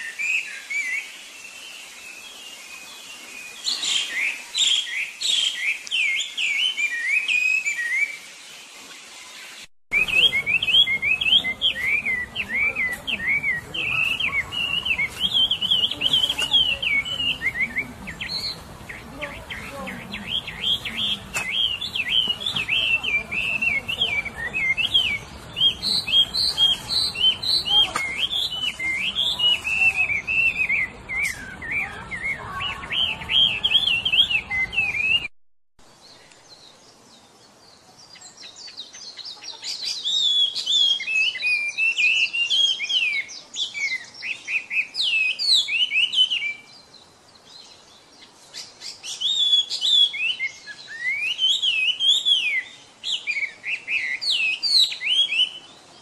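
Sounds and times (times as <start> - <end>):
bird singing whistled phrases: 3.4 - 8.3, 20.2 - 35.3, 40.0 - 46.7, 48.8 - 55.8.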